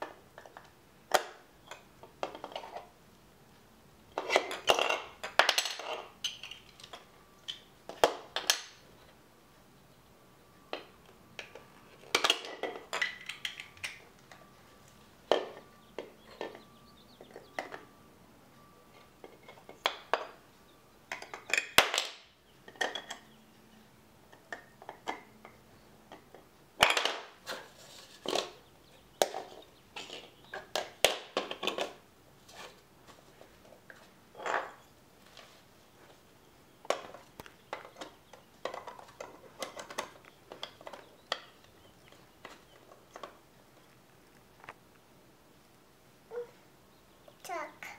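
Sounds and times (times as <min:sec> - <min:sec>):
plastic bricks clacking: 0:04.2 - 0:08.8, 0:10.8 - 0:14.4, 0:21.1 - 0:23.2, 0:26.1 - 0:28.6, 0:29.2 - 0:32.0, 0:36.9 - 0:43.4.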